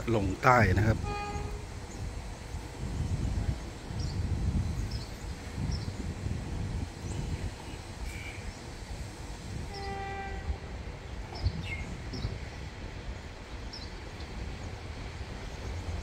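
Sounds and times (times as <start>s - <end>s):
low engine rumble: 0.0s - 16.0s
short horn blast: 0.9s - 1.8s, 9.7s - 10.7s.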